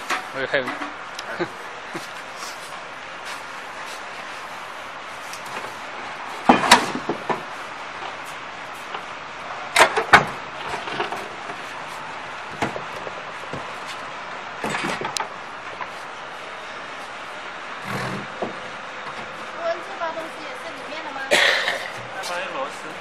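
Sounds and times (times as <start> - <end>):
steady hiss: 15.3 - 23.0.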